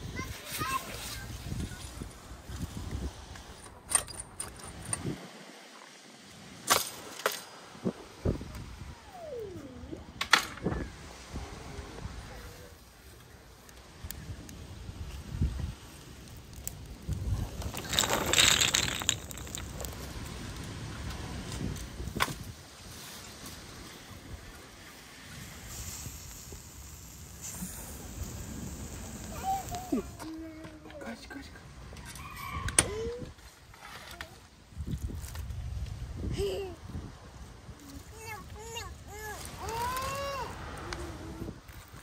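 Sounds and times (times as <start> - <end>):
brushwood fire crackling: 10.9 - 32.0, 33.4 - 42.0.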